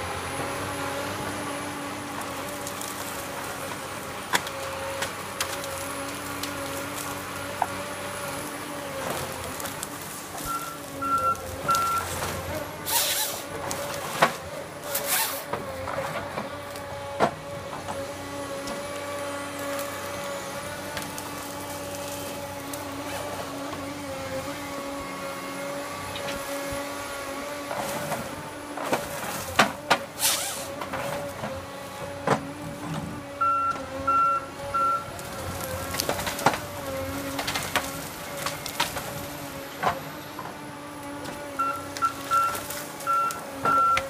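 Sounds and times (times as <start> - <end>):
diesel engine running: 0.0 - 44.0
short hissing bursts: 30.2 - 30.7.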